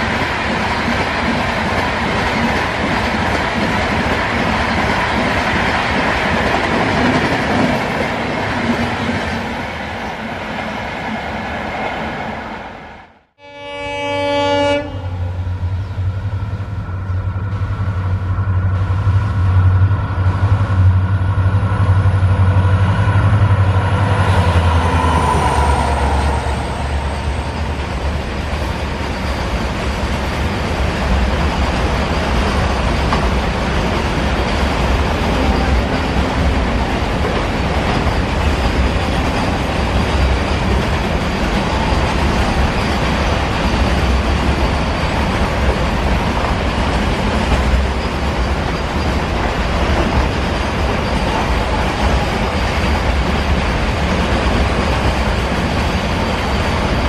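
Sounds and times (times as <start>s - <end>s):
diesel locomotive engine whining: 12.7s - 57.0s
train wagons rolling over rails: 15.6s - 57.0s.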